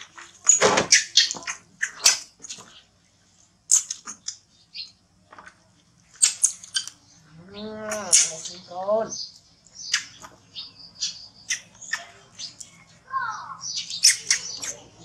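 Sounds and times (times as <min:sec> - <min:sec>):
monkey squeaking: 0:06.2 - 0:07.0, 0:07.9 - 0:08.8, 0:13.8 - 0:15.0.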